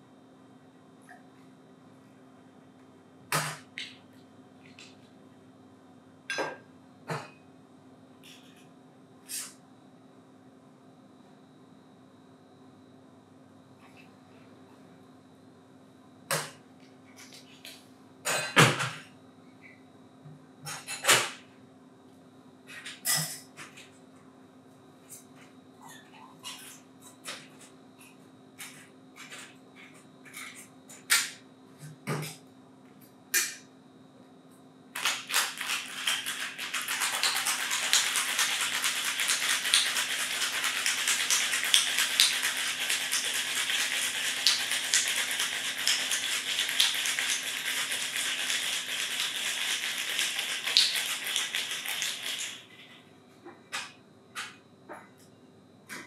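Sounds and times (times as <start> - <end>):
ice rattling in cocktail shaker: 35.0 - 52.7.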